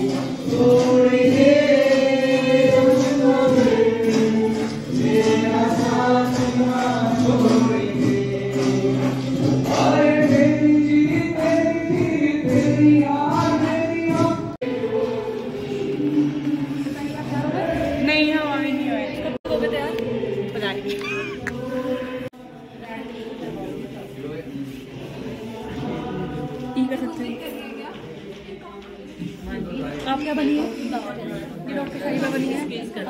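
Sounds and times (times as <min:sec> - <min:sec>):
person singing into a microphone: 0:00.0 - 0:18.0
acoustic guitar: 0:00.0 - 0:19.4.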